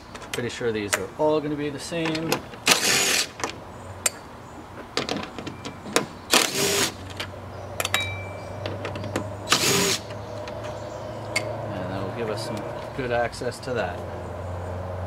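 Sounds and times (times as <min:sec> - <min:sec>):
bolts and tool clinking: 0:00.0 - 0:01.1, 0:01.8 - 0:11.6
cordless driver spinning bolts: 0:02.1 - 0:03.4, 0:06.3 - 0:07.0, 0:08.6 - 0:10.6.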